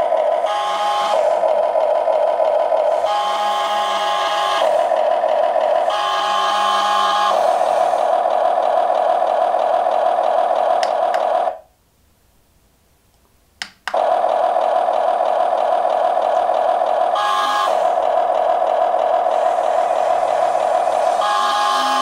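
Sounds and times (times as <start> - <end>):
click: 13.1 - 14.0
tinny simulated engine drone: 14.0 - 22.0.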